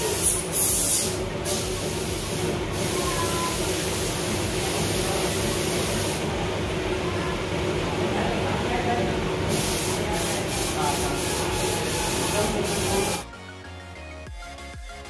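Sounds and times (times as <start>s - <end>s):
bursts of hiss: 0.0s - 6.3s, 9.5s - 13.2s.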